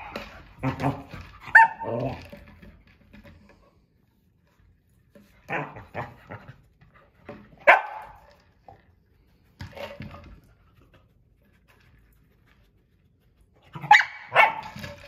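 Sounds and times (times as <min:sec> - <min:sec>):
dog barking: 0:07.6 - 0:08.2, 0:13.8 - 0:14.7.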